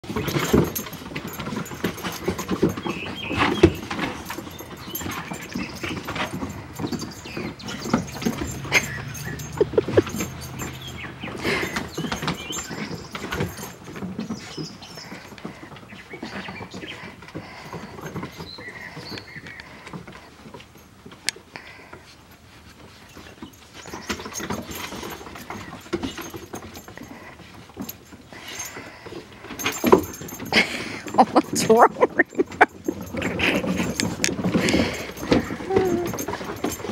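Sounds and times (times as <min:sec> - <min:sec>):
paws scrambling on wooden deck: 0:00.0 - 0:36.9
puppy noises: 0:00.0 - 0:36.9
puppy squeaks: 0:35.4 - 0:36.2.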